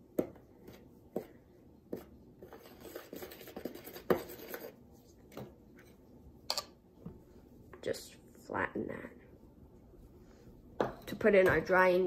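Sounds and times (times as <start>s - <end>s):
scraping through dry flour: 0.4s - 5.2s.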